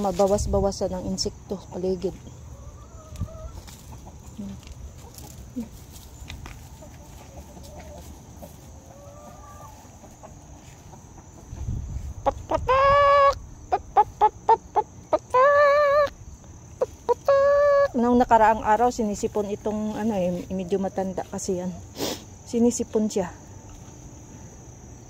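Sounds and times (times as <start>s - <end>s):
chickens clucking softly: 2.1s - 16.2s, 16.8s - 18.1s
chicken cackling loudly: 2.5s - 4.4s, 6.6s - 16.2s, 16.8s - 18.1s.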